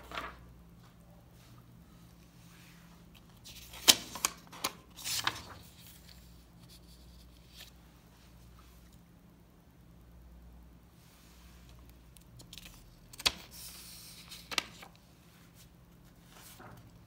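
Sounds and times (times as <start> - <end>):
paper page turning: 3.2 - 7.8, 12.1 - 15.0.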